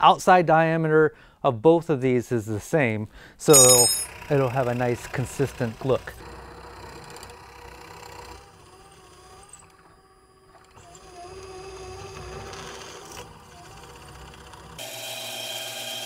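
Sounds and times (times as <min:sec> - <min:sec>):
drill press running: 0:03.5 - 0:16.0.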